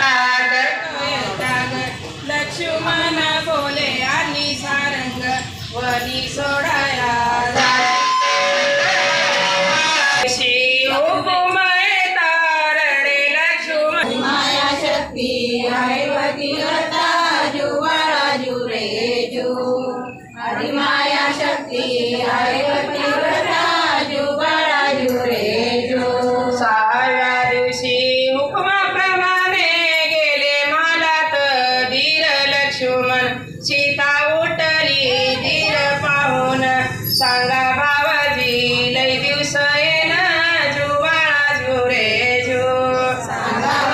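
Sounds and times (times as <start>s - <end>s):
women singing a devotional song: 0.0s - 43.9s
musical accompaniment: 7.6s - 10.2s.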